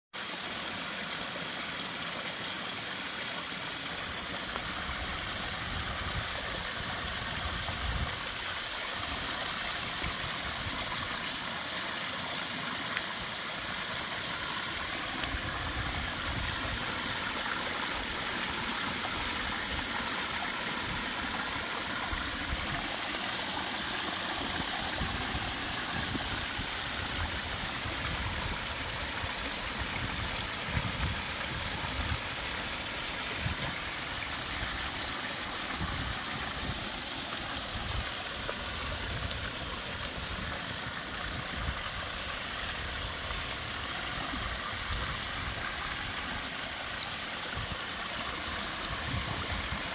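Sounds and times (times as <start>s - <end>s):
waterfall splashing into pond: 0.2s - 49.9s.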